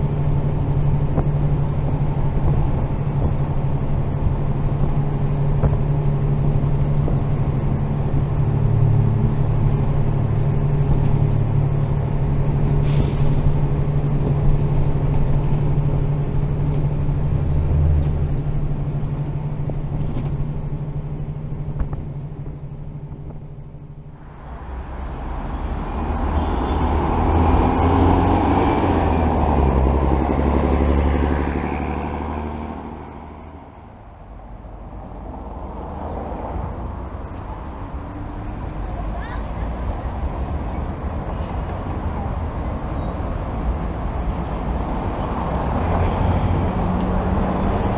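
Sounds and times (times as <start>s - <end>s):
bus engine hum from inside: 0.0s - 47.9s
rushing noise: 24.0s - 47.9s.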